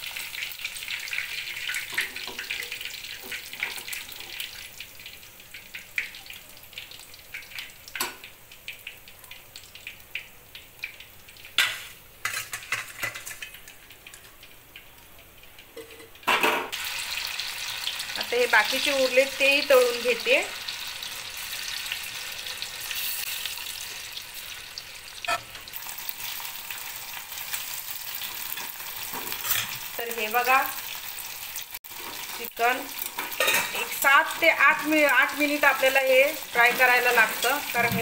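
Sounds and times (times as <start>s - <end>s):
hot oil sizzling and crackling: 0.0s - 38.0s
metal utensils clinking: 11.6s - 14.4s, 33.0s - 35.0s.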